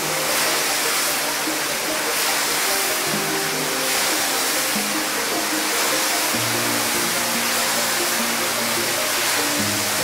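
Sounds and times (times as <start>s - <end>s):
pressure washer spraying water: 0.0s - 6.5s
soft background music: 0.0s - 10.0s.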